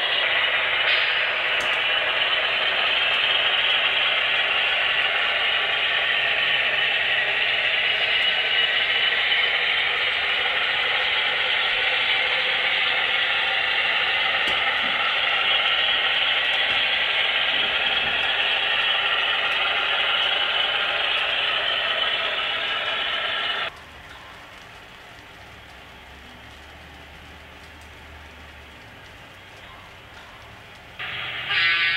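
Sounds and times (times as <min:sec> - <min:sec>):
model locomotives running: 0:00.0 - 0:31.9
model cars rolling on track: 0:14.4 - 0:31.7.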